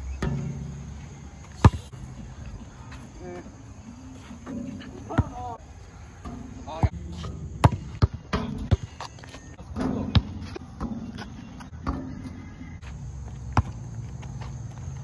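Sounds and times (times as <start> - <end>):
basketball bouncing on concrete: 0.2 - 2.3, 4.5 - 5.6, 6.2 - 9.2, 9.8 - 15.0.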